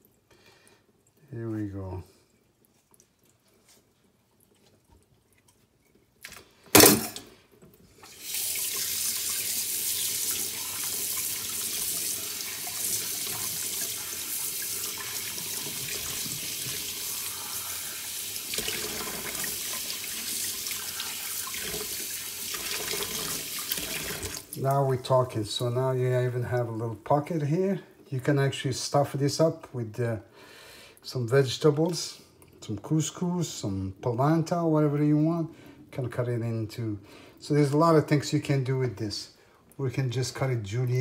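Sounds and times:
tap water running into steel sink: 8.0s - 24.6s.

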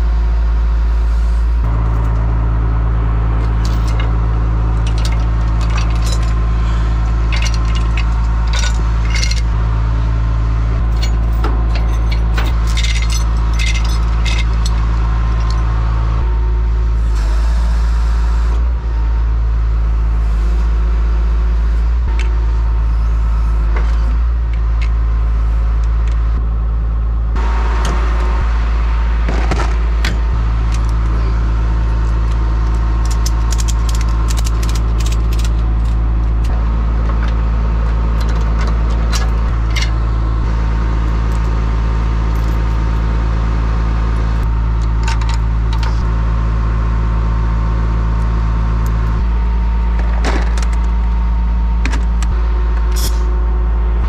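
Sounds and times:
diesel truck engine idling: 0.0s - 54.0s
tow chains clinking and rattling: 1.7s - 2.3s, 3.4s - 10.0s, 10.7s - 15.9s, 29.3s - 40.1s, 41.0s - 43.1s, 51.9s - 53.4s.

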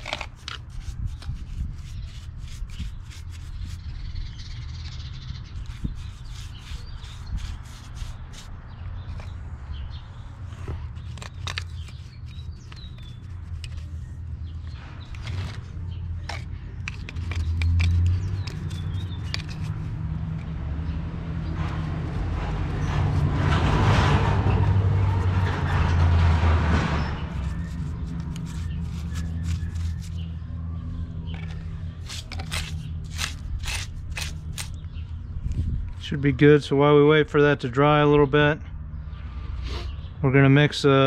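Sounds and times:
paintbrush scraping concrete: 0.0s - 9.4s, 10.4s - 20.5s, 21.4s - 30.3s, 31.3s - 35.0s.

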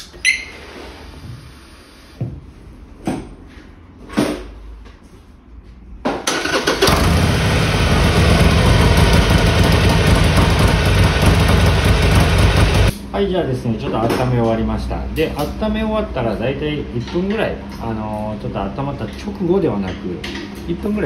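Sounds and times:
motorcycle engine starting and running: 6.2s - 12.9s.

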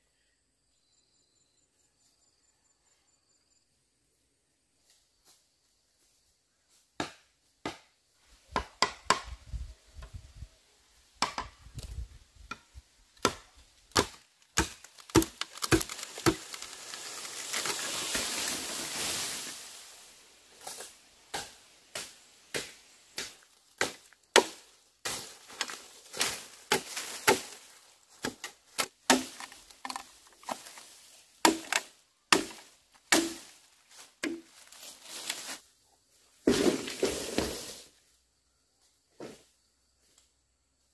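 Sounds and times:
machete chopping bamboo: 7.0s - 7.9s, 8.5s - 9.4s, 11.2s - 11.6s, 12.5s - 18.4s, 20.6s - 33.6s.

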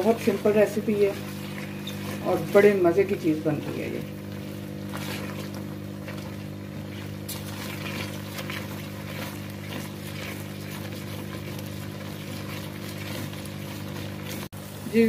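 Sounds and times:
chutney bubbling: 0.0s - 15.0s
steady low hum: 0.0s - 15.0s.

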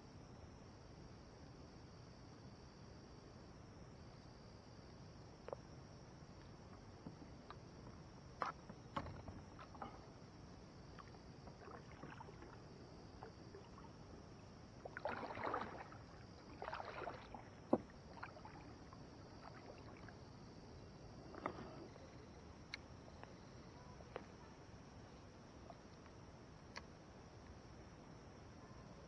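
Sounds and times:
faint high-pitched hiss: 0.0s - 29.0s
paddle splashing water: 6.5s - 22.9s
knocks and clicks on kayak hull: 6.7s - 10.0s.

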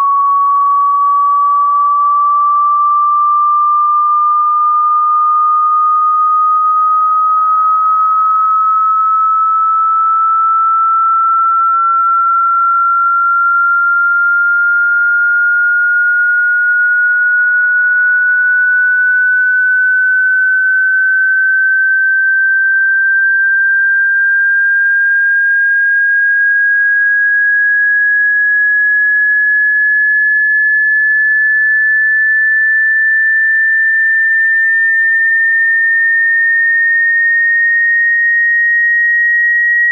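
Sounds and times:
rising sine-wave test tone: 0.0s - 39.9s.

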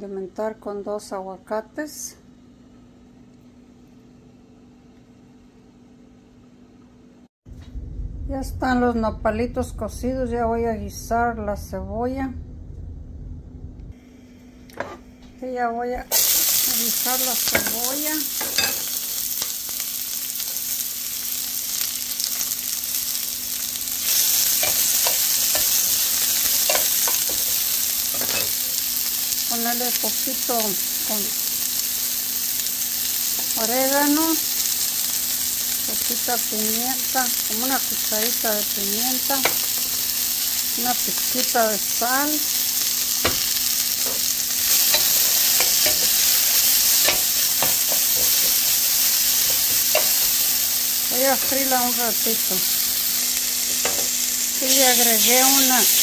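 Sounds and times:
onion sizzling in oil: 16.0s - 56.0s.

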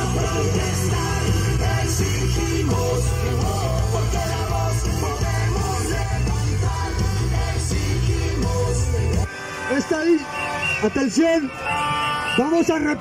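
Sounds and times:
rock song with yelled vocals: 0.0s - 9.7s.

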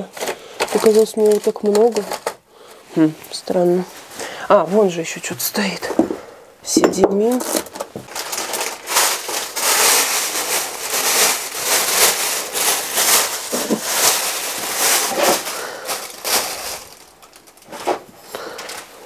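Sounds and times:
plastic packaging crinkling: 0.0s - 2.8s, 7.2s - 19.0s.

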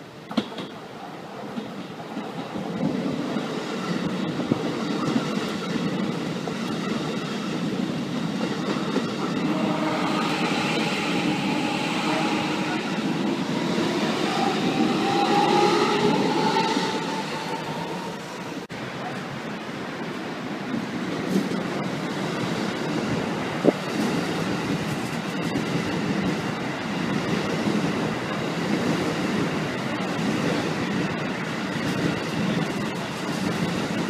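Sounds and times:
electric train passing slowly: 0.0s - 34.0s
whining tone rising in pitch: 9.4s - 18.6s.

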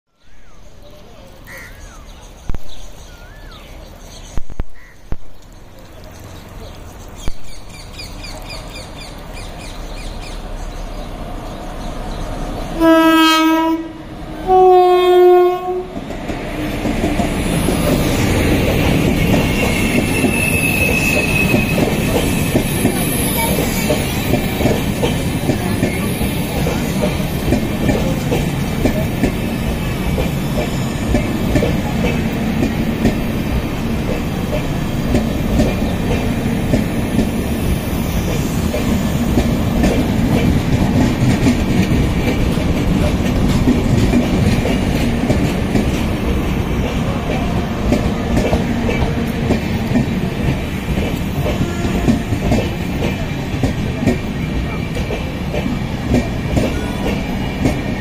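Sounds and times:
train rumble: 5.2s - 58.0s
locomotive horn blasts: 12.8s - 15.9s, 51.5s - 52.5s
wheel-on-rail rush: 15.2s - 58.0s.

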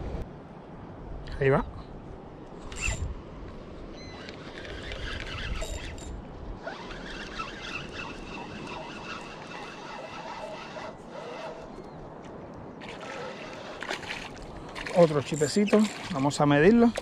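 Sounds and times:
wind rumble on microphone: 0.0s - 17.0s
fishing reel cranking with whine: 2.7s - 3.1s, 4.0s - 11.8s.

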